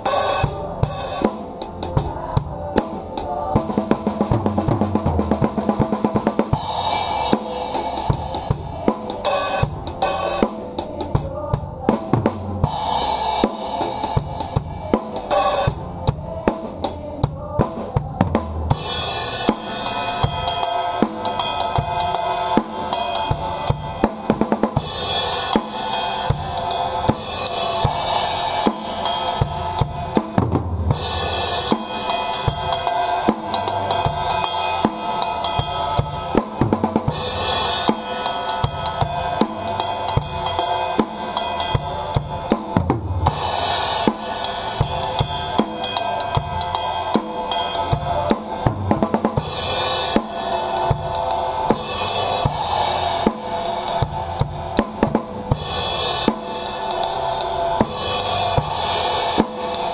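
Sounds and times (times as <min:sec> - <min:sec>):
drum kit playing shuffle: 0:00.0 - 0:59.9
full band playing: 0:00.0 - 0:59.9
cymbal crashes: 0:24.8 - 0:48.6, 0:49.4 - 0:59.9.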